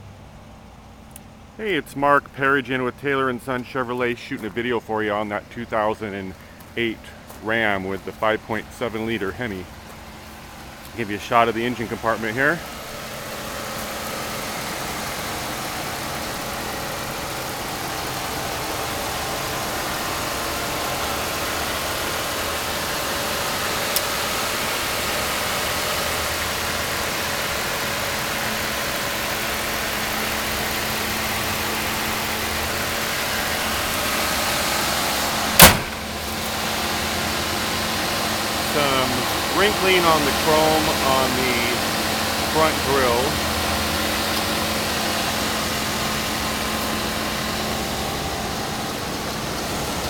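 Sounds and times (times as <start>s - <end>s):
engine idling: 0.0s - 50.0s
sharp knock: 35.6s - 36.0s.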